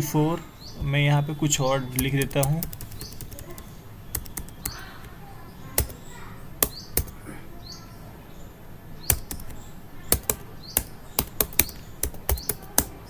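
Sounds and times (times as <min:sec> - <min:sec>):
computer keyboard keystrokes: 0:01.9 - 0:05.1, 0:05.8 - 0:06.0, 0:06.6 - 0:07.2, 0:09.1 - 0:13.0.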